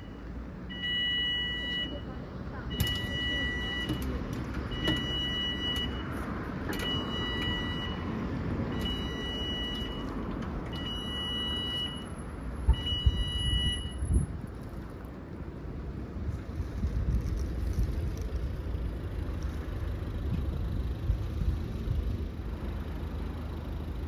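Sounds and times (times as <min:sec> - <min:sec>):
level crossing alarm beeping: 0:00.0 - 0:02.0, 0:02.7 - 0:14.1
road traffic: 0:00.0 - 0:24.0.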